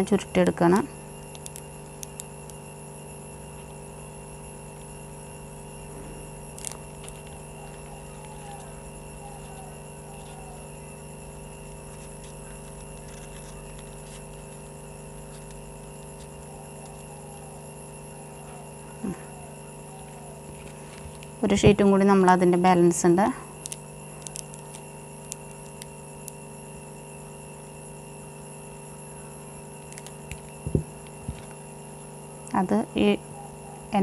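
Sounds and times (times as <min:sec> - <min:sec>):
electrical hum: 0:00.0 - 0:34.0
paper handling noises: 0:11.9 - 0:15.6, 0:20.4 - 0:21.6.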